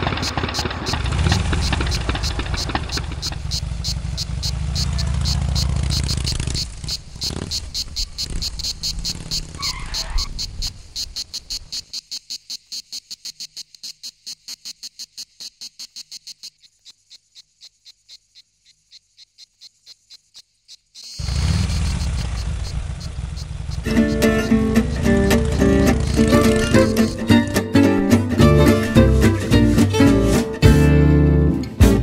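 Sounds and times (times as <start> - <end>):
car engine departing: 0.0 - 6.7, 21.2 - 32.0
crickets chirping: 0.0 - 29.4.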